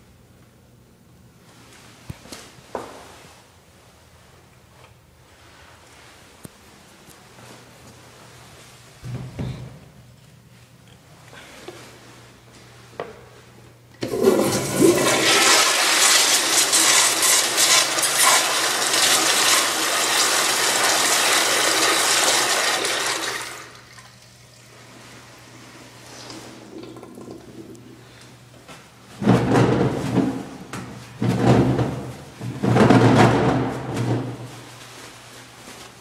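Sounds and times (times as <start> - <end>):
toilet flushing: 14.0 - 28.2.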